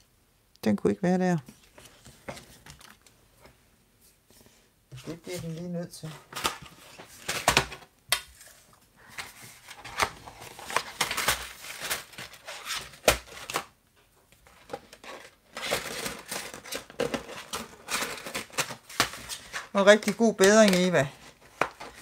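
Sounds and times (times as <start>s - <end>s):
plastic sleeve crinkling: 14.6s - 22.0s.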